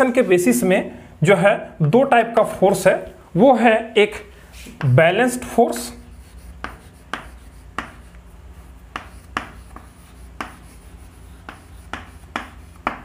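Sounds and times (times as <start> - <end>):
chalk tapping and scratching: 4.6 - 13.0.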